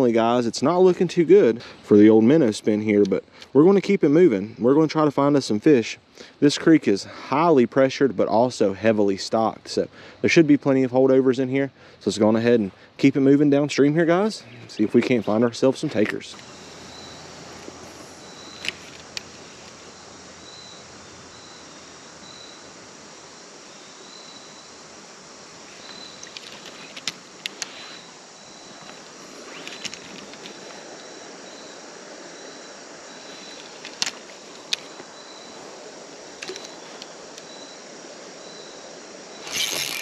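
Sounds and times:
steady outdoor hiss: 0:00.0 - 0:40.0
faint high chirp: 0:16.5 - 0:17.4, 0:21.4 - 0:22.7, 0:23.7 - 0:24.8
fishing reel clicks: 0:39.4 - 0:40.0.

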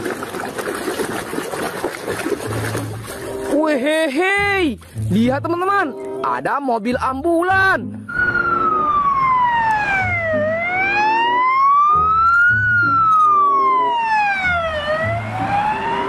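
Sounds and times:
ambulance siren wailing: 0:08.1 - 0:16.0.

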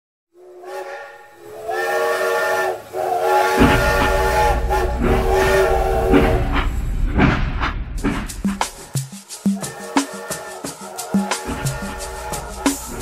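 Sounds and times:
steam locomotive whistle blasts: 0:00.4 - 0:06.7, 0:09.4 - 0:13.0
low rumble: 0:03.6 - 0:08.7.

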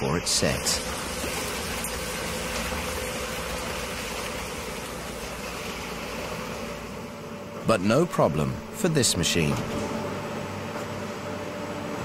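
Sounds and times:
wet concrete pouring: 0:00.0 - 0:07.0.

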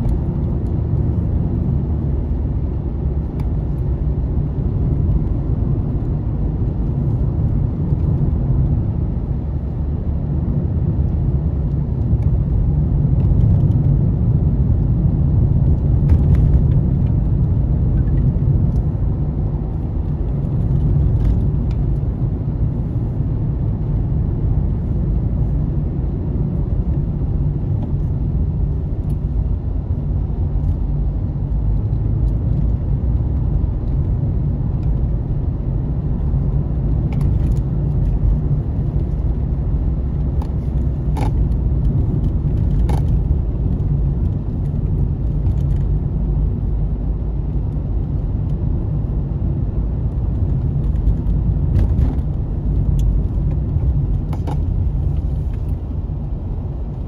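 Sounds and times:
car engine and tyre rumble: 0:00.0 - 0:57.0.

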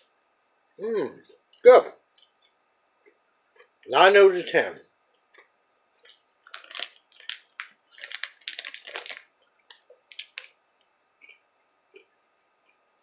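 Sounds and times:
plastic candy bag crinkling: 0:06.0 - 0:10.6.

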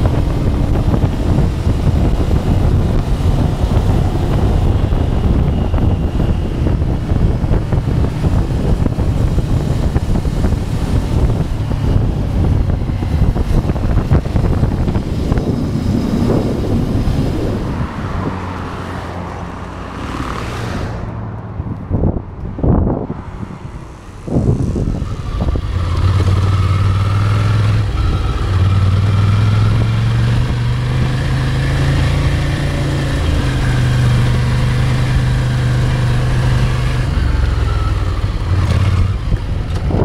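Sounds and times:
motorcycle engine running: 0:00.0 - 0:17.8
wind buffeting microphone: 0:00.0 - 0:40.0.

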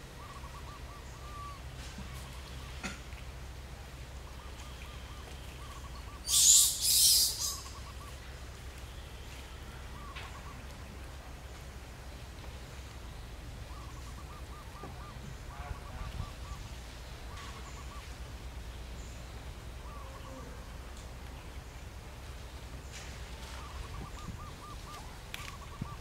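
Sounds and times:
low outdoor background: 0:00.0 - 0:26.0
faint bird chirps: 0:04.3 - 0:10.7.

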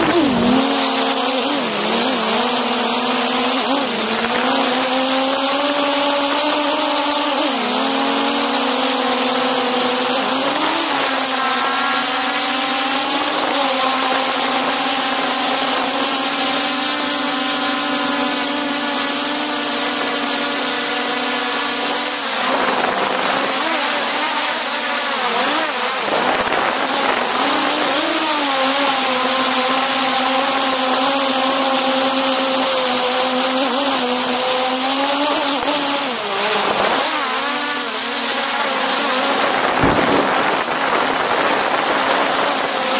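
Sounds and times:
drone propellers whining: 0:00.0 - 0:42.9.

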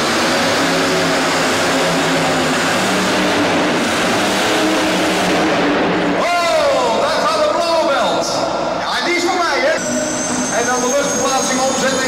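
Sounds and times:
tractor engine running under load: 0:00.0 - 0:05.8.

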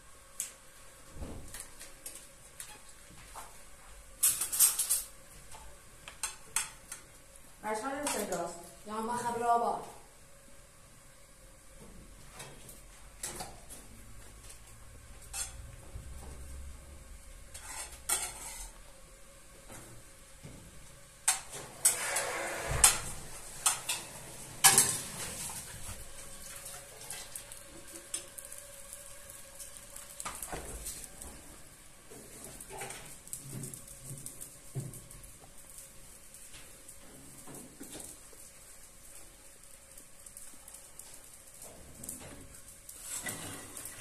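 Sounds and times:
dishes and utensils clattering: 0:04.2 - 0:05.1.

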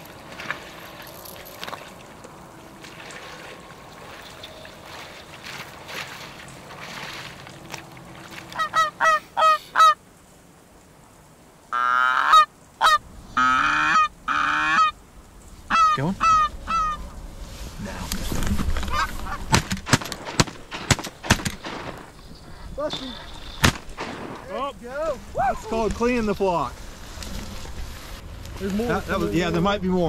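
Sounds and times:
goose honking: 0:08.5 - 0:10.0, 0:11.7 - 0:15.0, 0:15.7 - 0:17.1, 0:18.8 - 0:19.6.

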